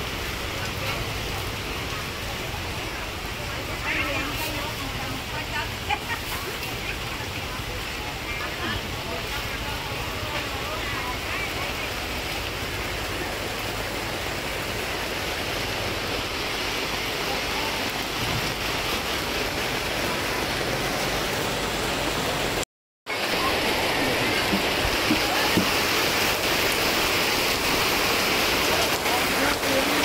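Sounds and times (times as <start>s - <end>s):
steady rain hiss: 0.0s - 30.0s.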